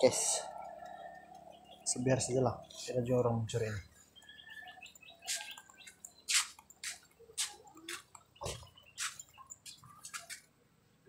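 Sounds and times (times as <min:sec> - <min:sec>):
footsteps on wet concrete: 0:06.3 - 0:10.5.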